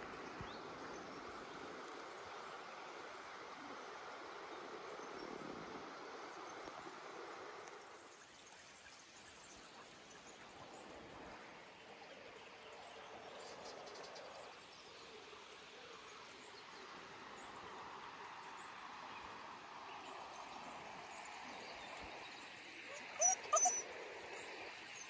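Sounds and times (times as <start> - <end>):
running water: 0.0 - 25.0.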